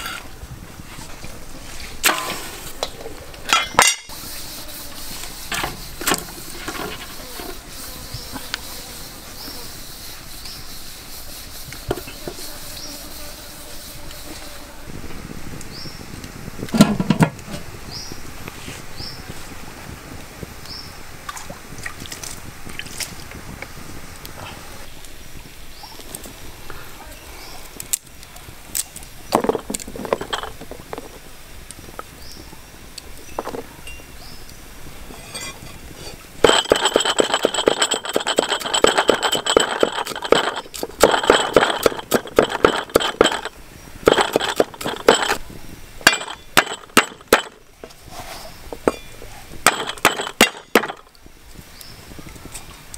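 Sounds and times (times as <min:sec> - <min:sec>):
rattan rack knocking against metal pot: 0:36.4 - 0:45.4, 0:46.0 - 0:47.6, 0:49.7 - 0:51.0.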